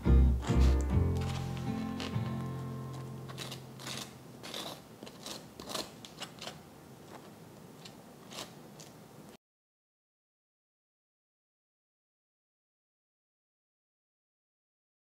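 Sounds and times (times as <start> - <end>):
knife scraping jam on toast: 0.5 - 9.0.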